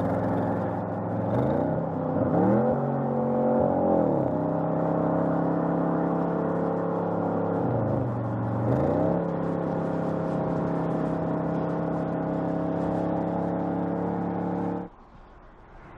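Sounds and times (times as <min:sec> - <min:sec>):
car exhaust at steady revs: 0:00.0 - 0:15.9.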